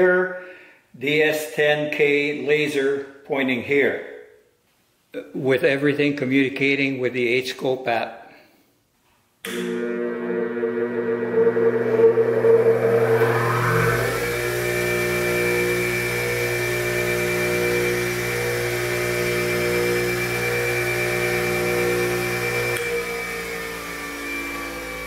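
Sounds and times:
bench grinder motor whine: 0:09.5 - 0:25.0.

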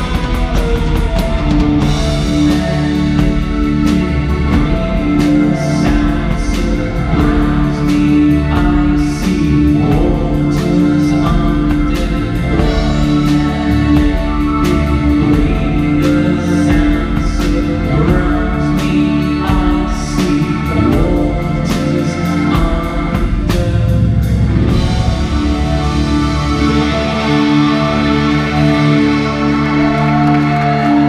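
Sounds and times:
drum kit and cymbal hits: 0:00.0 - 0:18.9
bass: 0:00.0 - 0:31.0
electric guitars: 0:00.0 - 0:31.0
keyboards: 0:00.0 - 0:31.0.

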